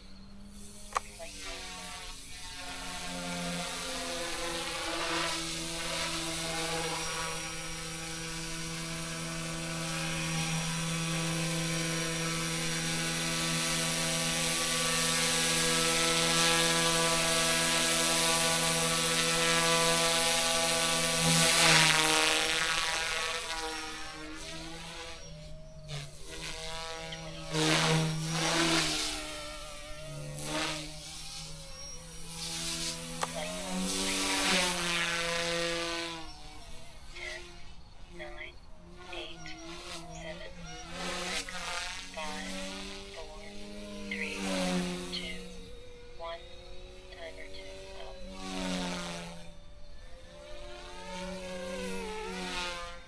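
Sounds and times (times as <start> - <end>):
toy helicopter rotor buzz: 0.0 - 53.0.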